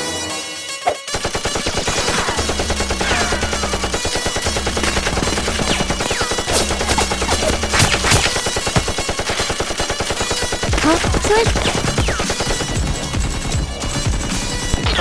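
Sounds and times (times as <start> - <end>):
background music: 0.0 - 15.0
machine gun fire: 1.1 - 14.9.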